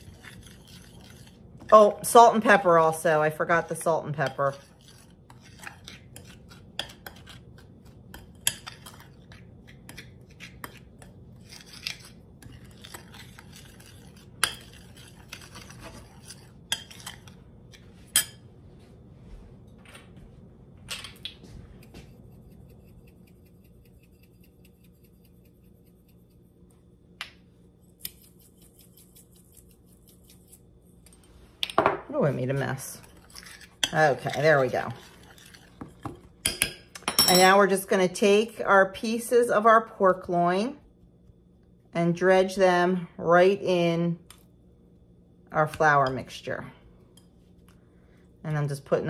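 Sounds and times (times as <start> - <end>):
metal spoon clinking in bowl: 36.4 - 37.6.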